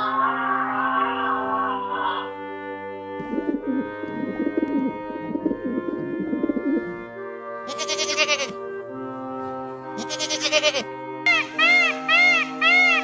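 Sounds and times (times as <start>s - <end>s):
background music: 0.0s - 13.0s
goat bleating: 7.7s - 8.6s, 10.0s - 10.9s.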